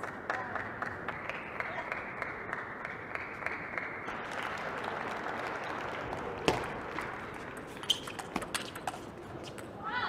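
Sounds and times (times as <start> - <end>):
audience applauding: 0.0 - 7.5.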